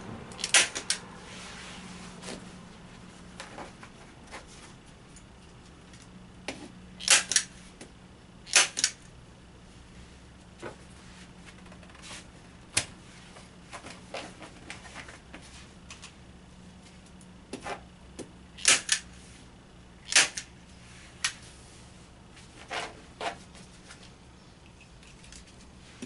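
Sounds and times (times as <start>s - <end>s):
staple gun snapping: 8.5s - 9.0s, 18.6s - 19.0s, 20.1s - 20.5s.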